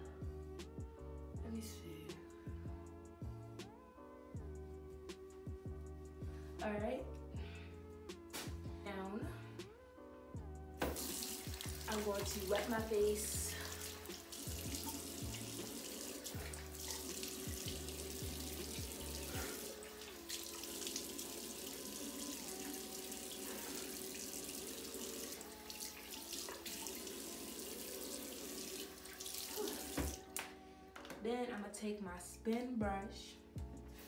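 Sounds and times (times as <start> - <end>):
tap running into sink: 10.8 - 12.4, 29.6 - 30.3
water splashing on face: 10.8 - 24.3.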